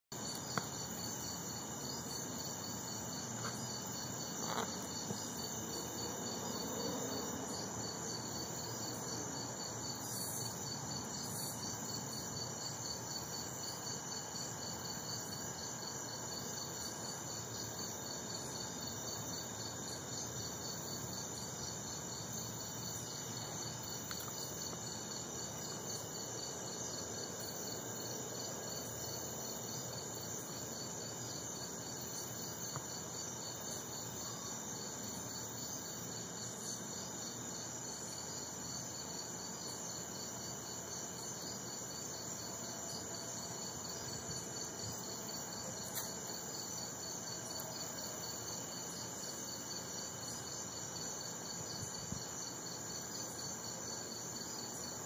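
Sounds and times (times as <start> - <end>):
insects chirping: 0.1 - 55.0.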